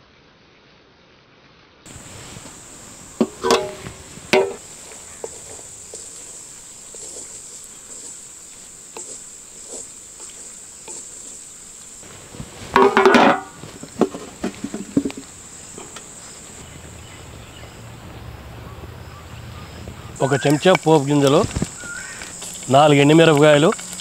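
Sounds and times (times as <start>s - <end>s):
small knocks: 1.9s - 6.0s, 12.7s - 16.7s
insects chirring: 1.9s - 24.0s.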